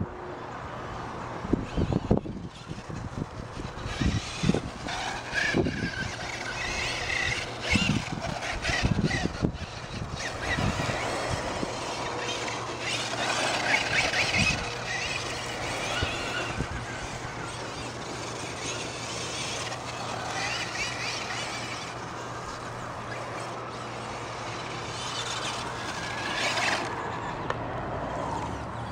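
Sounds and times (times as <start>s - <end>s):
rc truck motor whining: 0.4s - 28.9s.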